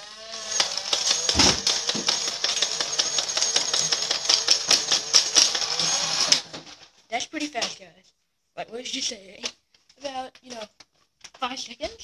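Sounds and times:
toy blaster flywheels whining: 0.0s - 6.8s
rapid clicks of darts firing: 0.5s - 6.8s.

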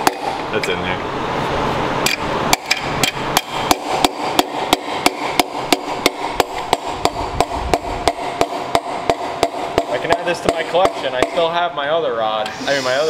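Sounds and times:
mallet knocking: 0.0s - 0.4s, 2.1s - 11.6s.

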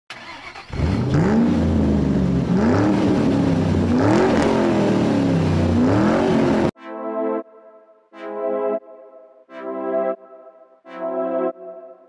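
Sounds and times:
car engine accelerating: 0.1s - 6.8s.

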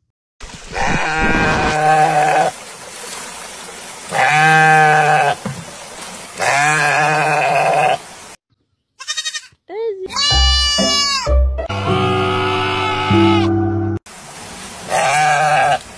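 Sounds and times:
water splashing: 0.4s - 8.4s, 14.1s - 15.9s
sheep bleating: 0.8s - 2.5s, 4.1s - 5.4s, 6.4s - 8.0s, 9.0s - 13.6s, 14.9s - 15.8s.

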